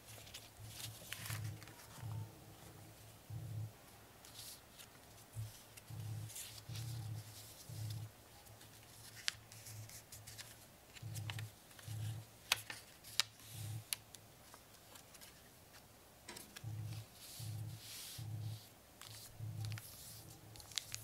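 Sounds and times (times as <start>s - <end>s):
paper crinkles: 0.0s - 2.2s, 4.2s - 15.9s, 19.0s - 21.0s
paper rustling and crackling: 0.0s - 3.1s, 4.2s - 17.4s, 18.0s - 21.0s.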